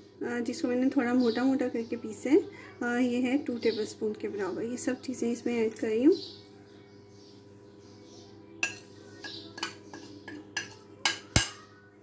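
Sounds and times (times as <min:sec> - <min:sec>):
metal spoon clinking on pot: 0:08.6 - 0:11.6.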